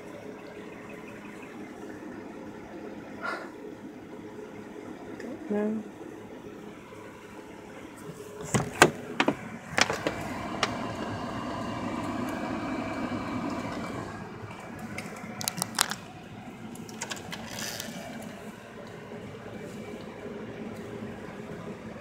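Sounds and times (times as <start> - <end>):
car seat clicks and knocks: 8.4 - 10.8.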